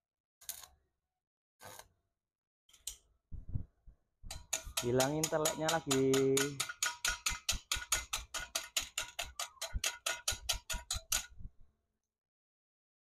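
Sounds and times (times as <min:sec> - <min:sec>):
chipping hammer tapping on steel: 0:04.3 - 0:11.4.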